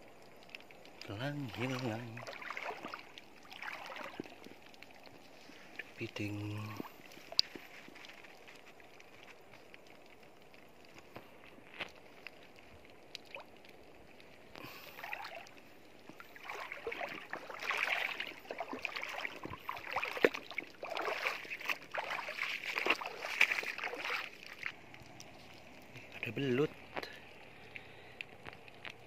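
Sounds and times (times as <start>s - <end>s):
seawater splashing from wading: 1.0s - 8.4s, 14.6s - 24.8s.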